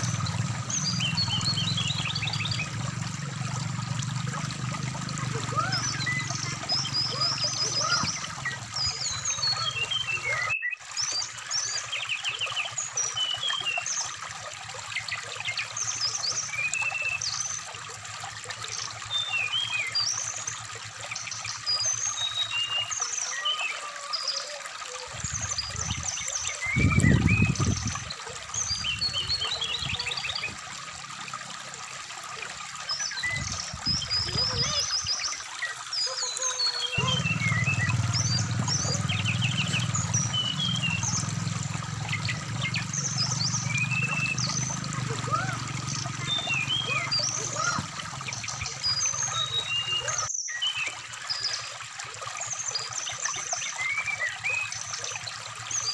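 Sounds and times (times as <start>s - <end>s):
shallow stream rushing: 0.0s - 55.9s
bird singing whistled phrases and trills: 5.4s - 14.0s, 21.7s - 28.0s, 33.0s - 41.3s, 42.2s - 51.7s, 52.6s - 55.9s.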